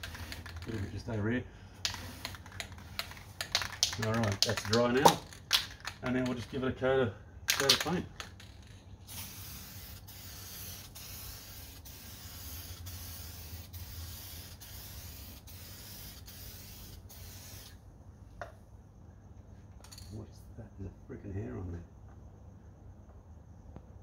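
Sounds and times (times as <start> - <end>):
aerosol can spraying hiss: 0.0 - 0.9, 1.8 - 4.7, 9.1 - 17.8.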